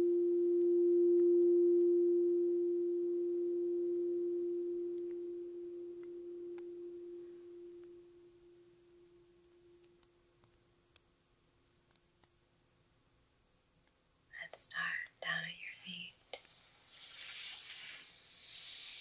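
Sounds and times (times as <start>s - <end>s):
singing bowl ringing: 0.0s - 9.8s.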